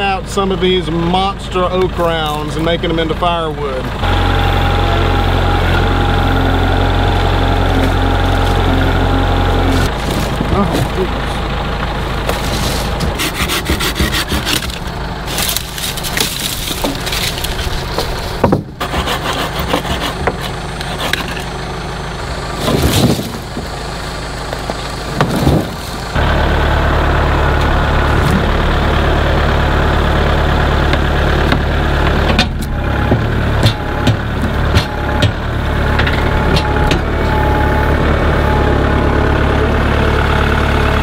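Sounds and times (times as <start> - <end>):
tractor engine idling: 0.0 - 41.0
wood knocking and scraping: 9.7 - 11.0, 12.2 - 21.5, 24.5 - 26.1, 30.8 - 37.1.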